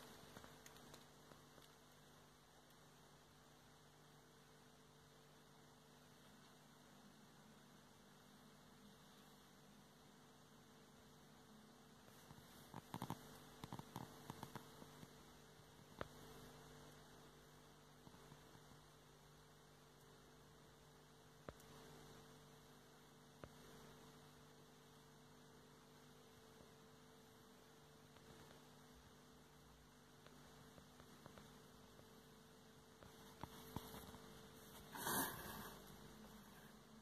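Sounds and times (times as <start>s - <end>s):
faint steady hum: 0.0s - 37.0s
faint clicks: 0.2s - 1.8s.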